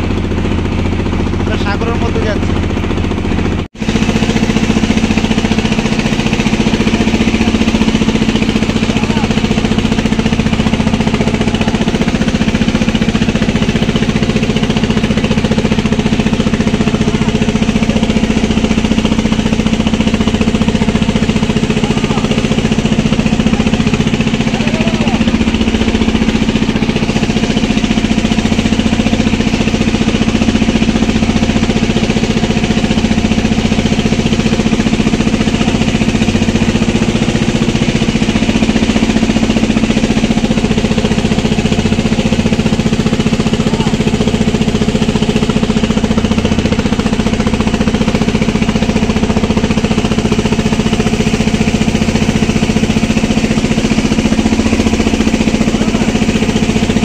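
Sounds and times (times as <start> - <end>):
boat engine droning: 0.0 - 57.0.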